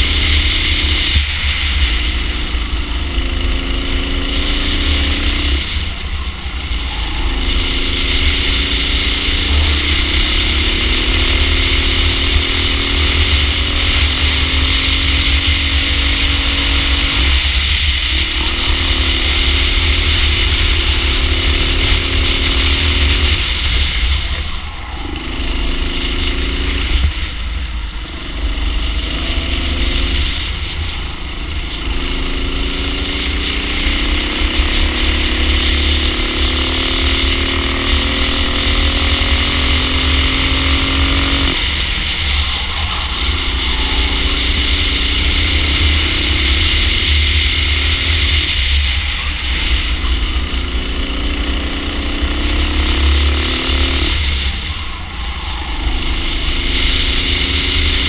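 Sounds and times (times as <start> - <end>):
kart engine revving: 0.0 - 58.0
steady low rumble: 0.0 - 58.0.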